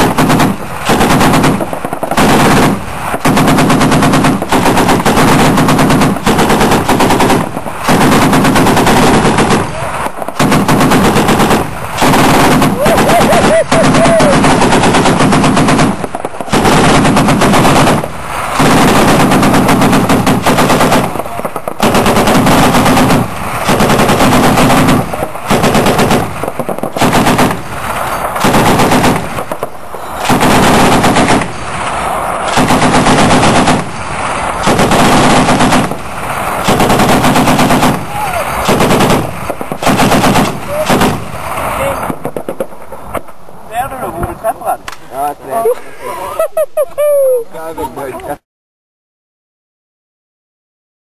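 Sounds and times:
heavy machine gun bursts: 0.0s - 29.6s, 30.2s - 31.6s, 32.5s - 33.9s, 34.6s - 41.2s.

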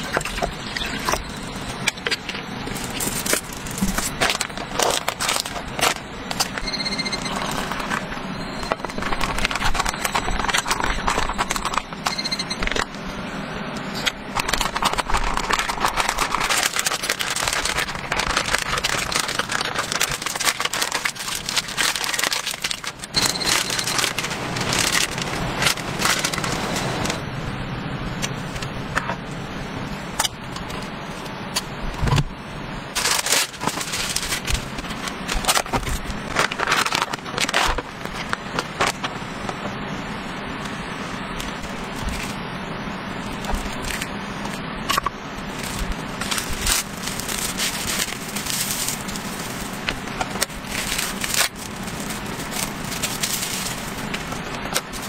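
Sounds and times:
plastic pouch crinkling: 2.0s - 6.6s, 7.2s - 12.0s, 14.4s - 27.2s, 33.0s - 39.1s, 45.5s - 55.0s
cling film rustling: 14.4s - 27.2s, 33.0s - 39.2s, 45.5s - 55.0s.

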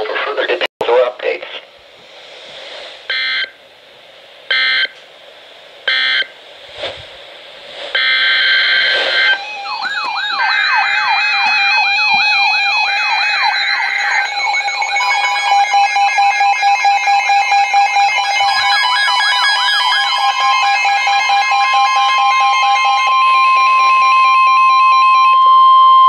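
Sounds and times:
weather alert radios warbling: 0.0s - 1.8s, 7.9s - 26.0s
digital data bursts: 8.0s - 23.1s
steady beeps: 8.0s - 24.2s.

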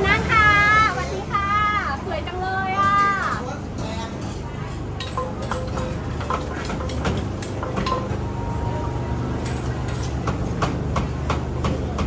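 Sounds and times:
cooking utensils knocking and clinking: 2.9s - 8.3s.

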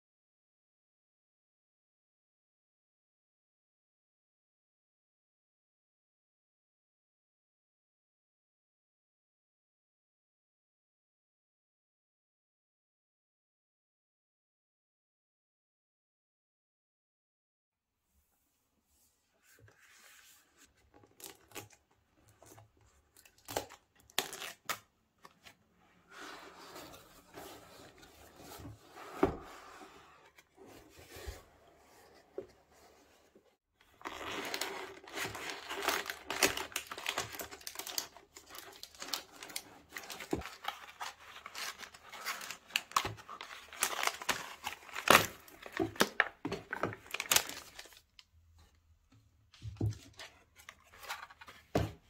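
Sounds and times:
packaging tearing and crinkling: 23.2s - 24.8s, 34.0s - 46.3s, 47.0s - 48.0s.

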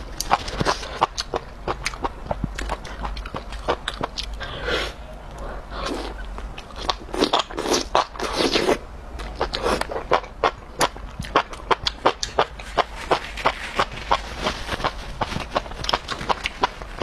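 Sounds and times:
open-mouthed chewing: 0.0s - 17.0s
slurping noodles: 4.4s - 6.2s, 6.8s - 8.8s.

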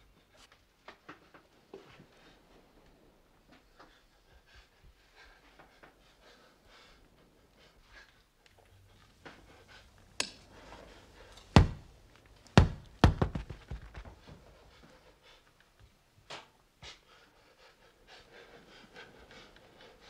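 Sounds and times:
ball bouncing on floor: 11.6s - 11.9s, 12.6s - 14.2s
light knocks: 11.6s - 11.9s.

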